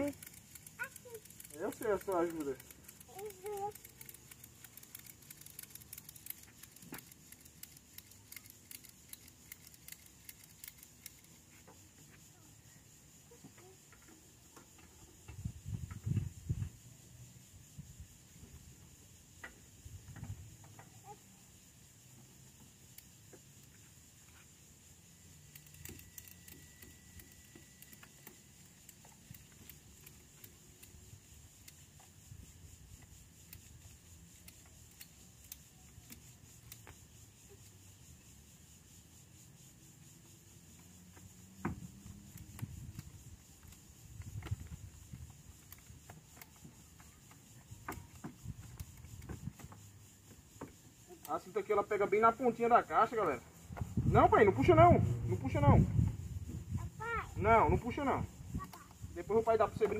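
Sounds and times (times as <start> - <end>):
strap hooks clicking and rattling: 0.0 - 11.7, 25.4 - 32.2.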